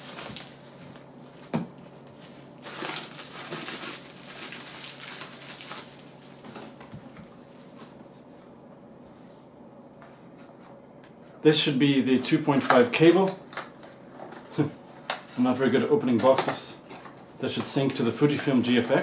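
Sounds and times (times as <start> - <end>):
bubble wrap crinkling: 0.0 - 8.0.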